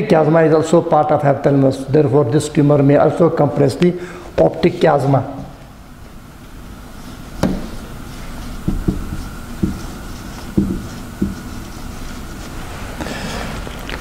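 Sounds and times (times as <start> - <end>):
marker tapping on whiteboard: 7.4 - 7.8, 8.6 - 11.5.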